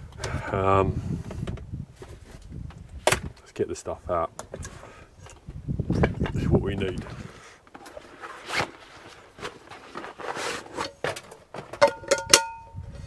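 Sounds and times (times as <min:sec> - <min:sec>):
rustling and small knocks: 0:01.2 - 0:03.5, 0:04.3 - 0:12.8
sharp ringing clinks: 0:11.9 - 0:12.8.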